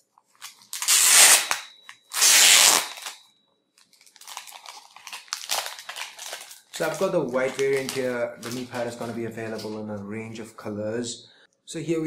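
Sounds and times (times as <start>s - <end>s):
plastic film crinkling: 0.3s - 3.2s, 3.8s - 10.1s
plastic film ripping peel: 0.3s - 3.2s, 3.8s - 9.8s.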